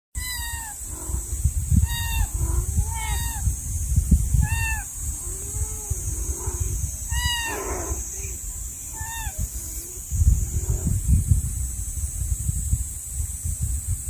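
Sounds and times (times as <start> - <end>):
kitten mewing: 0.2 - 1.0, 1.7 - 3.5, 4.3 - 10.0
lower longer calls: 0.2 - 11.0
steady low rumble: 0.2 - 14.0.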